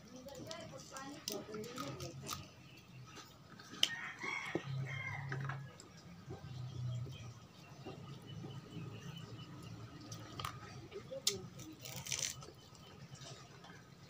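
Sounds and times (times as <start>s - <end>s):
chewing and food handling: 0.0s - 14.0s
rooster crowing: 3.8s - 5.6s.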